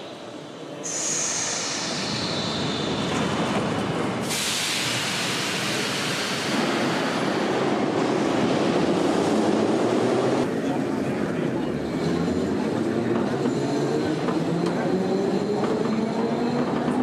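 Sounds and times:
sharp hiss: 0.8 - 3.1, 4.2 - 7.3
train wheels and air rushing: 0.8 - 10.5.

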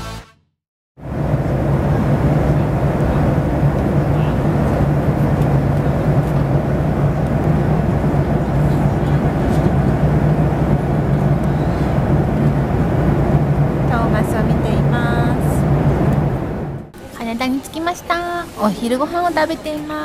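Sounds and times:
jet engine and airflow rush: 1.0 - 17.0
low cabin hum: 1.0 - 17.0.

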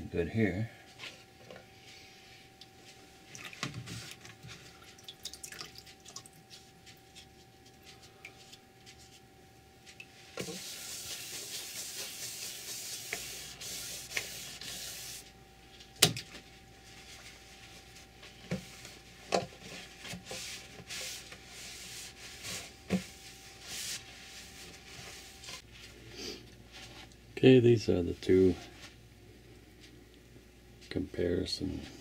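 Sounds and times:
sandpaper rubbing on wood: 10.5 - 15.2.

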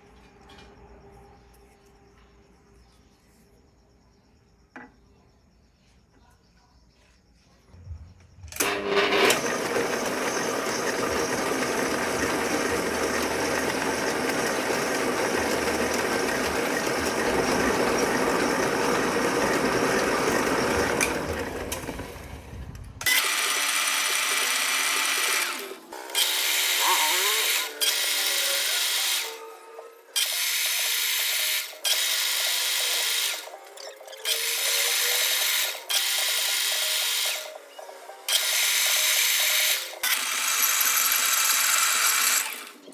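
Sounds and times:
metal lathe cutting thread: 8.6 - 22.2, 23.0 - 29.6, 30.2 - 33.5, 34.2 - 37.5, 38.3 - 42.9.

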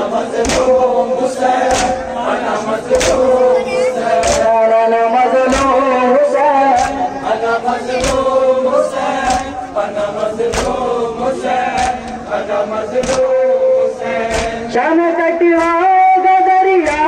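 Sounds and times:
men chanting in unison: 0.0 - 17.0
chest-beating slaps: 0.4 - 0.8, 1.6 - 2.0, 2.9 - 3.4, 4.2 - 4.5, 5.5 - 5.8, 6.8 - 7.0, 8.0 - 8.3, 9.2 - 9.6, 10.5 - 10.9, 11.7 - 12.2, 13.0 - 13.4, 14.3 - 14.6.

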